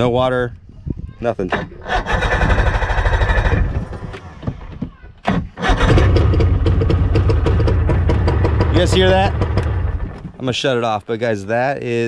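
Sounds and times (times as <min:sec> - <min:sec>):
outboard motor cranking and running: 0:01.5 - 0:04.6, 0:05.4 - 0:10.4.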